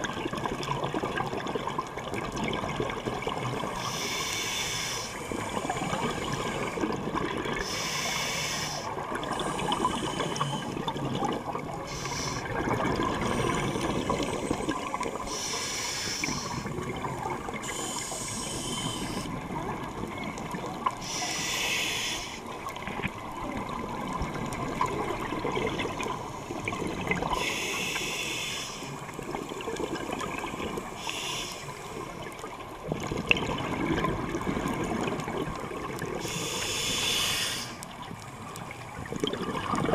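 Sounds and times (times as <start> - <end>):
continuous low bubbling: 0.0 - 39.9
regulator hiss on inhale: 3.6 - 6.9, 7.6 - 10.8, 11.8 - 12.6, 13.2 - 16.7, 17.4 - 19.4, 21.0 - 22.6, 26.2 - 29.3, 30.0 - 32.6, 36.2 - 38.5
bubbles on exhale: 5.3 - 7.8, 9.0 - 15.3, 22.9 - 27.4, 32.8 - 36.7, 38.7 - 39.9.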